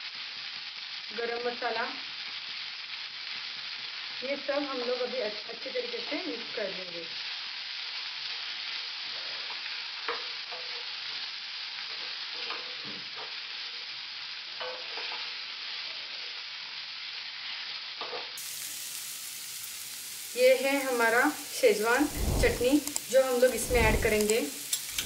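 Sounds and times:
vegetables sizzling in a pan: 0:00.0 - 0:25.0
spatula scraping a pan: 0:11.9 - 0:13.4, 0:14.6 - 0:15.3, 0:21.7 - 0:25.0.

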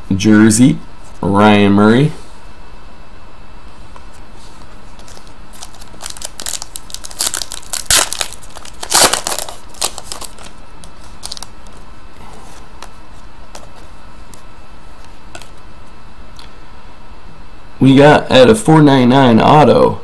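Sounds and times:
plastic wrapper crinkling: 0:04.9 - 0:11.8.

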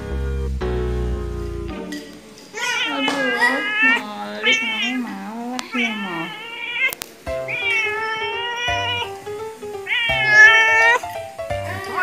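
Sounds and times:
music with slow bass beat: 0:00.0 - 0:02.5
cat yowling: 0:02.5 - 0:12.0.

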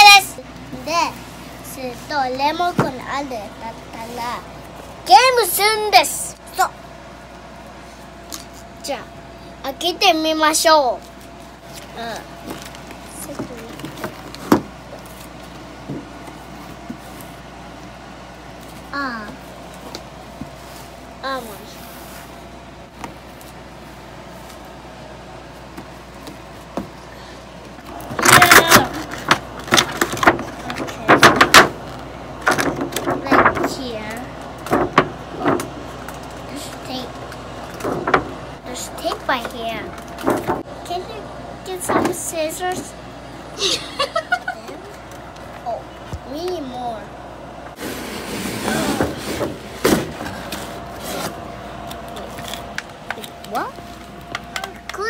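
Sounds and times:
cardboard scraping and rustling: 0:47.8 - 0:52.7.

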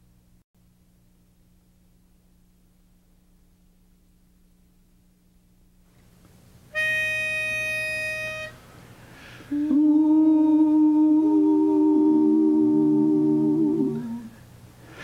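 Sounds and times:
men humming a chord: 0:06.7 - 0:15.0
pitch pipe note: 0:06.8 - 0:08.6.

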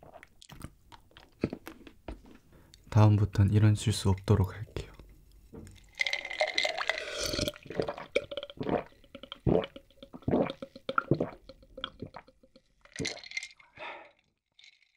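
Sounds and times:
person gulping a drink: 0:00.0 - 0:02.0, 0:05.6 - 0:14.9.

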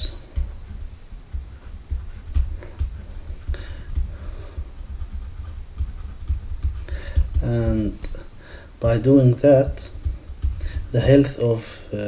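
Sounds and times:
pen taps on whiteboard: 0:00.0 - 0:07.5, 0:09.7 - 0:11.0
low knocks: 0:08.8 - 0:11.2.

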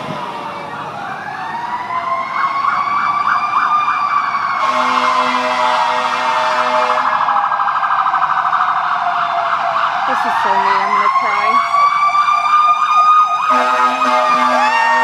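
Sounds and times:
fire truck sirens: 0:00.0 - 0:15.0
low horn blast: 0:04.6 - 0:07.2, 0:13.5 - 0:15.0.

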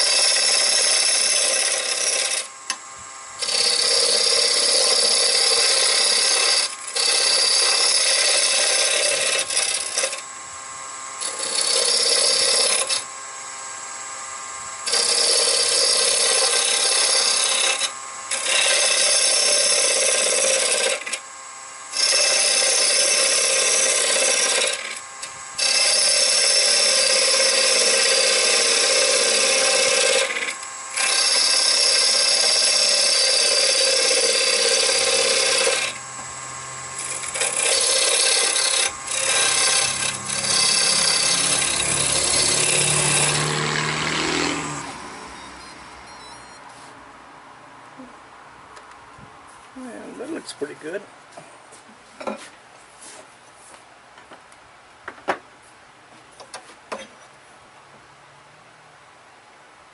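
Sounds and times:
lathe tool scraping wood: 0:00.0 - 0:47.0.

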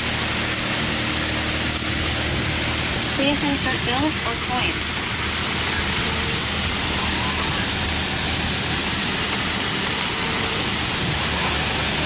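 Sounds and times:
car wash equipment rushing: 0:00.0 - 0:12.0
bill acceptor whine: 0:03.2 - 0:12.0.

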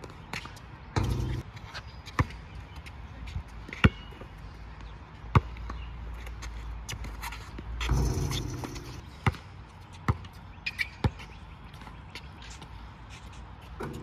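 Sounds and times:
basketball bouncing on court: 0:00.0 - 0:01.5, 0:05.3 - 0:05.8, 0:07.8 - 0:10.4, 0:13.8 - 0:14.0.

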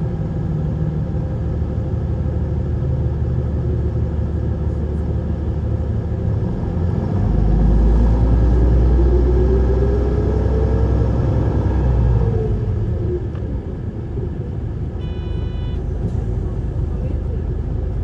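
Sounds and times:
bus engine whining and rumbling: 0:00.0 - 0:18.0
short electronic chime: 0:15.0 - 0:15.8.

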